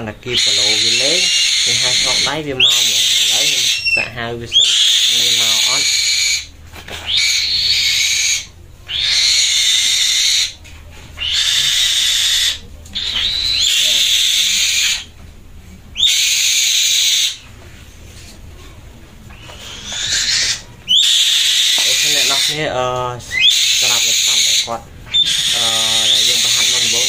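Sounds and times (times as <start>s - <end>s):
bird harsh hissing screams: 0.3s - 10.6s, 11.2s - 15.1s, 16.0s - 17.4s, 19.4s - 22.7s, 23.3s - 27.0s.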